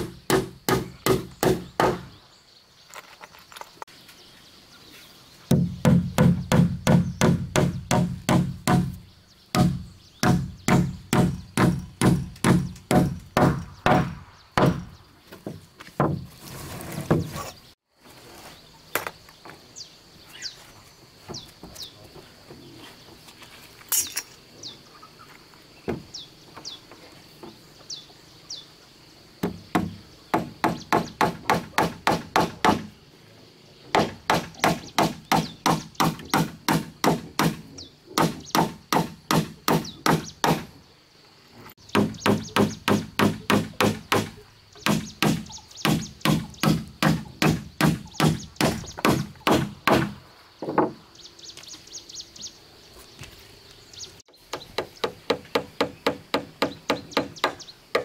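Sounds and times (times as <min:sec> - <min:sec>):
hammer striking wooden planks: 0:00.0 - 0:02.1, 0:05.5 - 0:09.0, 0:09.6 - 0:16.3, 0:29.4 - 0:32.9, 0:33.9 - 0:37.6, 0:38.2 - 0:40.7, 0:41.9 - 0:51.0, 0:54.5 - 0:58.0.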